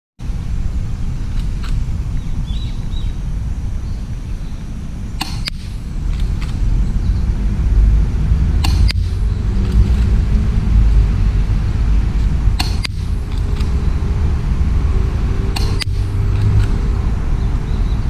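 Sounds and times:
steady low rumble: 0.2s - 18.0s
suppressed pistol shot clicks: 5.2s - 6.6s, 8.6s - 10.1s, 12.2s - 13.8s, 15.6s - 16.8s.

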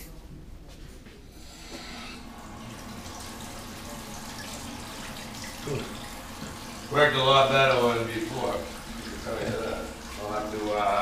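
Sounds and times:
tap water running into sink: 2.2s - 11.0s.

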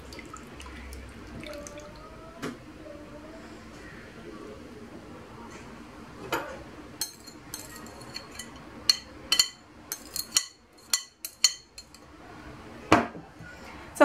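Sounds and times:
glass bowl clinking: 7.0s - 12.0s.

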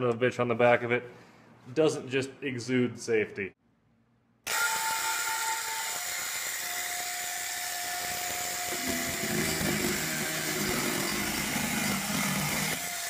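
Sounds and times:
electric chainsaw whine: 4.5s - 13.0s.

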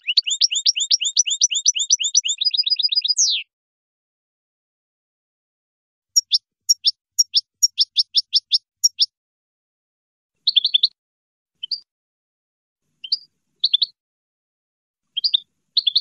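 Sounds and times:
goldfinch singing: 0.0s - 3.5s, 6.2s - 9.1s, 10.4s - 11.0s, 13.0s - 14.0s, 15.2s - 16.0s.

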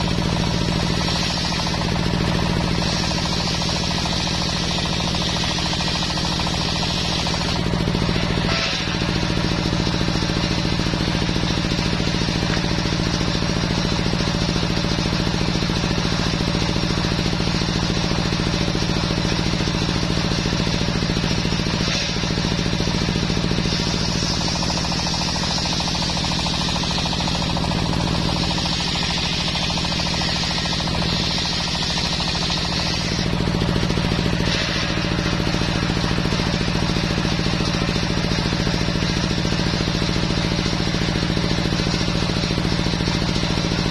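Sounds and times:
saw blade cutting wood: 0.0s - 14.0s, 20.4s - 38.5s
table saw motor drone: 6.5s - 13.2s, 32.4s - 37.0s.

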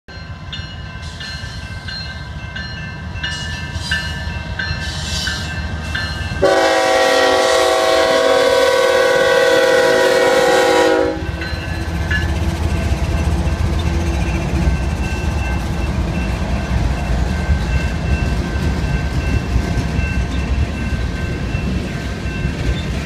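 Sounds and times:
locomotive rumble: 0.2s - 23.0s
train horn chord: 6.4s - 11.5s.

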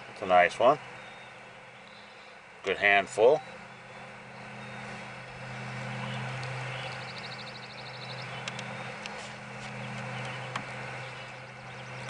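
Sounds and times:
low steady hum: 0.0s - 12.0s
bird trilling: 0.9s - 2.4s, 3.2s - 12.0s
faint clicks: 8.4s - 9.2s.

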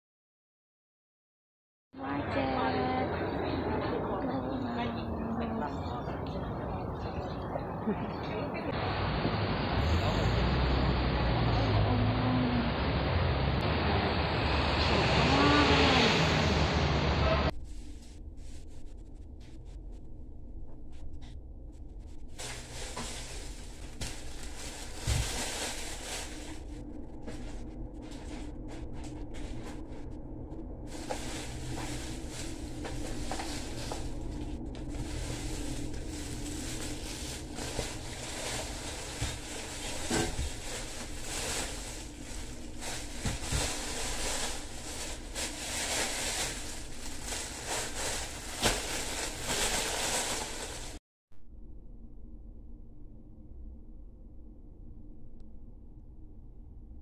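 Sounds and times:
steady low hum: 2.0s - 57.0s
plastic bags crinkling: 22.3s - 27.6s, 30.9s - 51.0s.

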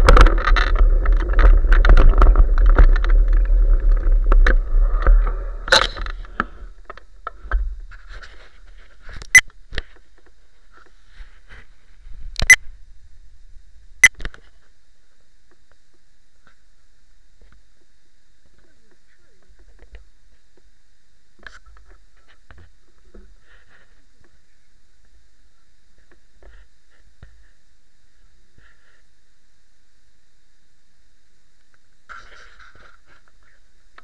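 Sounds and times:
sharp clicks and knocks: 0.0s - 7.7s
wind and road noise: 0.0s - 7.9s.

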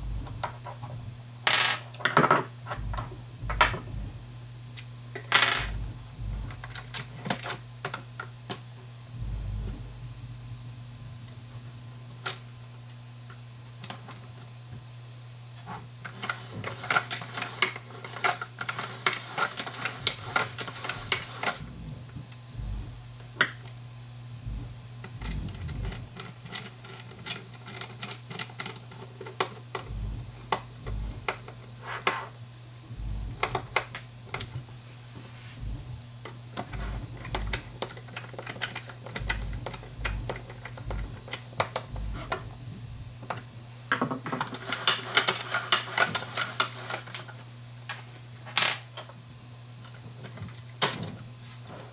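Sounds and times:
steady low hum: 0.0s - 51.9s
screwdriver work: 16.0s - 23.7s, 24.4s - 31.6s, 32.9s - 34.6s, 36.6s - 43.4s.

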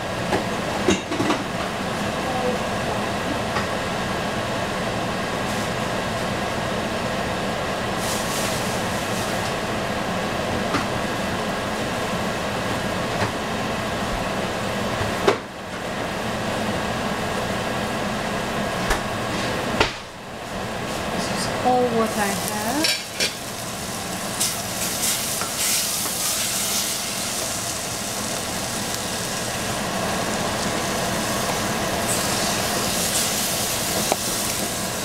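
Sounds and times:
food sizzling in a saucepan: 8.0s - 9.4s, 21.8s - 35.0s.

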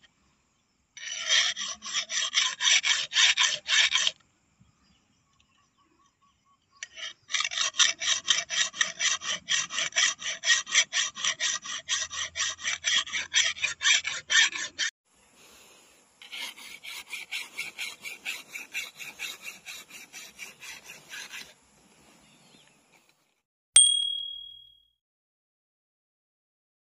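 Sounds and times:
file rasping on steel blade: 1.0s - 4.2s, 6.8s - 14.9s, 16.2s - 21.6s
bright chime: 23.8s - 24.8s.

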